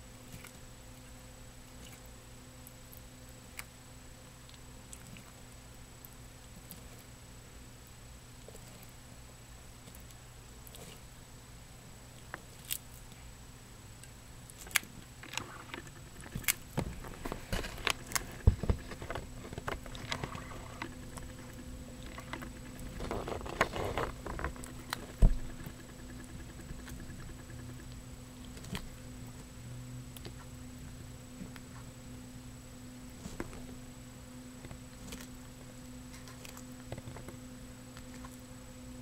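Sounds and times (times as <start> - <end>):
turtle crunching insect shell: 12.2 - 13.2, 14.4 - 31.9.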